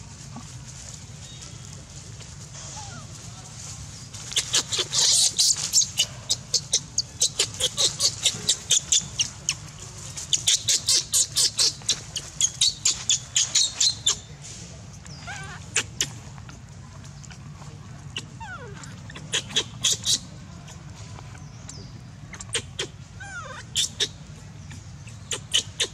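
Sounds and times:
baby monkey shrill squeals: 4.3s - 9.6s, 10.2s - 14.2s, 15.2s - 16.2s, 18.1s - 20.8s, 22.3s - 24.2s, 25.0s - 25.9s
baby monkey falling cries: 4.3s - 14.2s, 15.2s - 16.6s, 18.1s - 20.8s, 22.3s - 25.9s.

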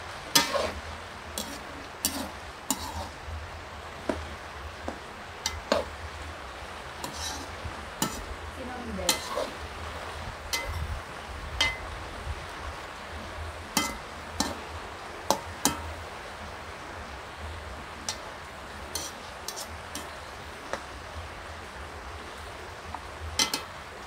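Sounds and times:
peanuts frying in oil: 0.0s - 24.0s
metal spatula scraping wok: 0.3s - 3.2s, 5.4s - 5.9s, 7.0s - 8.3s, 9.0s - 9.6s, 10.5s - 11.0s, 13.8s - 14.6s, 18.8s - 20.2s, 23.4s - 23.8s.

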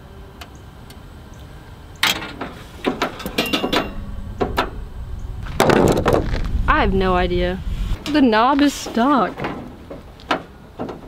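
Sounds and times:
metal clicks and clinks of oven: 2.0s - 4.7s
metal clatter: 2.1s - 6.5s
low rumble: 2.7s - 8.5s.

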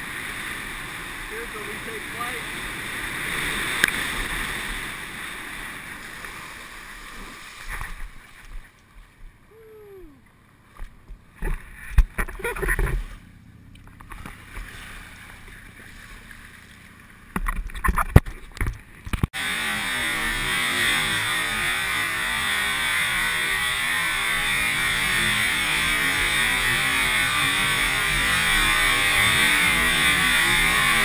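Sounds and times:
wind and water rushing: 0.0s - 9.5s
bumps and splashes: 10.1s - 31.0s.

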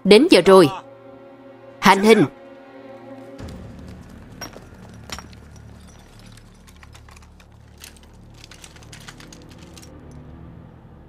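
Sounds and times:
low music drone: 0.0s - 11.0s
rifles clicking: 4.4s - 10.2s.

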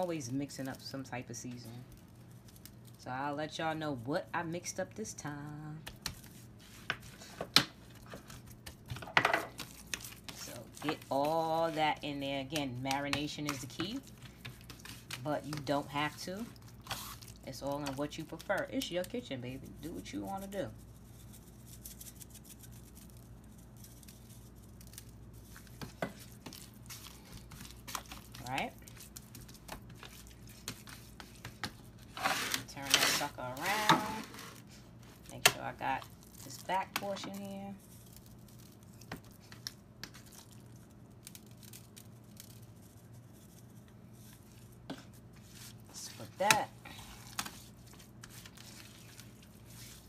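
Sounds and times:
hands rubbing seasoning into meat: 20.0s - 25.7s.

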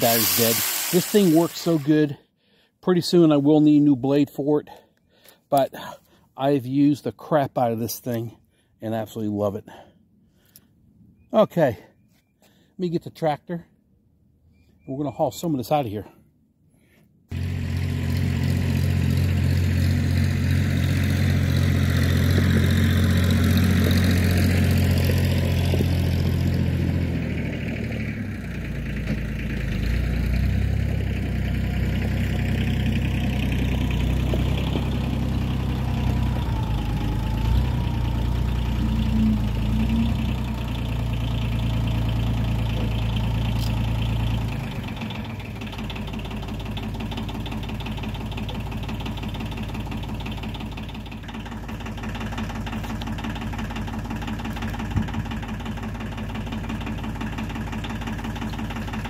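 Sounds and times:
tractor engine running: 0.0s - 2.2s, 17.3s - 59.0s.

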